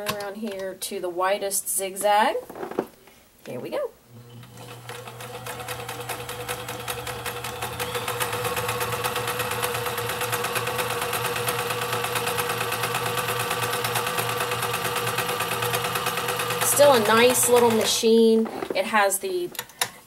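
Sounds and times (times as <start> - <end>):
sewing machine stitching: 4.2 - 18.8.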